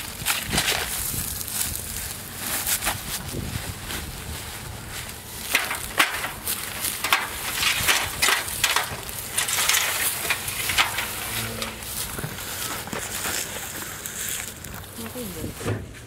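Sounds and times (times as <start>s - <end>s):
sharp crackles: 0.0s - 15.5s
aluminium ladder being moved: 5.4s - 14.9s.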